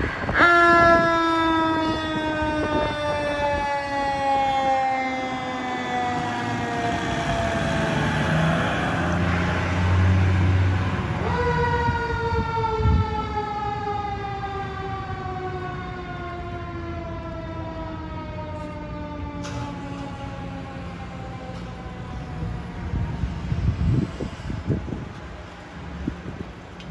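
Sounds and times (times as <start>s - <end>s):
diesel engine revving: 5.3s - 12.4s.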